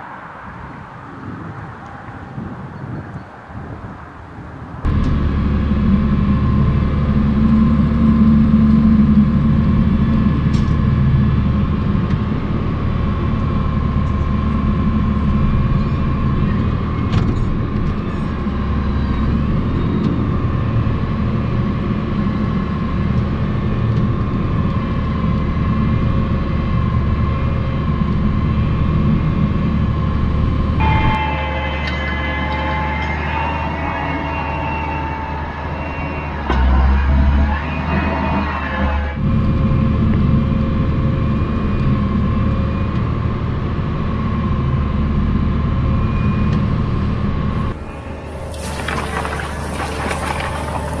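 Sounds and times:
tractor engine drone: 0.0s - 51.0s
high whine: 28.4s - 39.9s.

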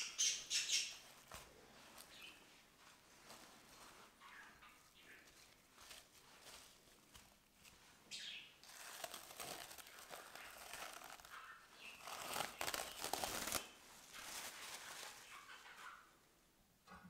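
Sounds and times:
cling film crinkling: 8.6s - 15.6s.

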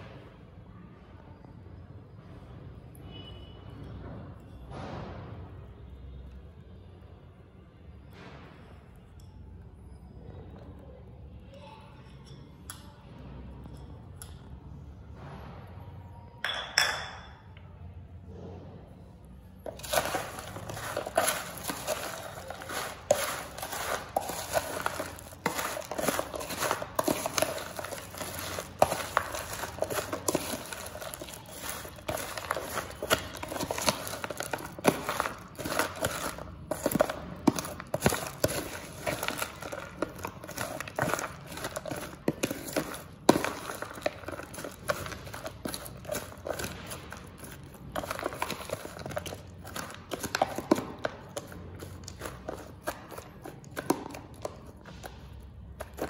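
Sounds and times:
chips crunching: 19.6s - 55.2s, 55.8s - 56.0s.

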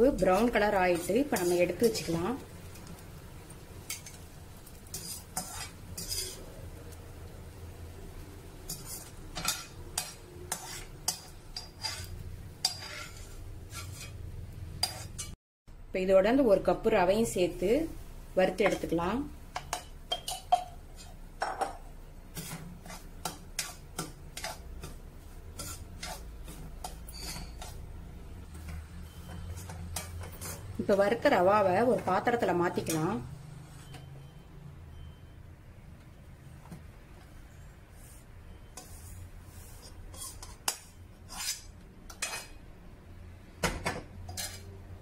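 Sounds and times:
metal spoon scraping a pan: 0.0s - 7.0s, 8.6s - 15.4s, 18.5s - 34.1s, 37.6s - 42.7s, 44.2s - 45.0s.

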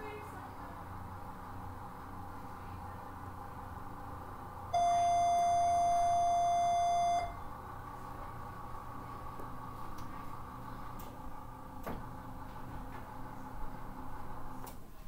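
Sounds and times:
faint room hum: 0.0s - 15.0s
electronic beep: 4.8s - 7.4s.

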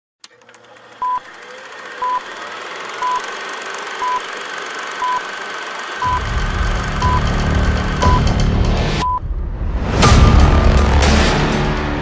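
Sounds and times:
high countdown beeps: 8.0s - 8.3s.

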